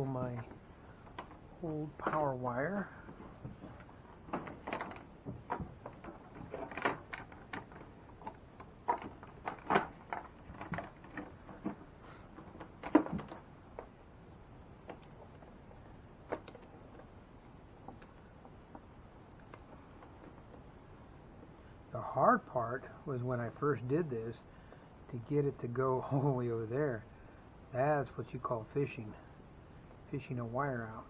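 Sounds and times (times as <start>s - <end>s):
wire rustling and scraping: 0.0s - 13.9s.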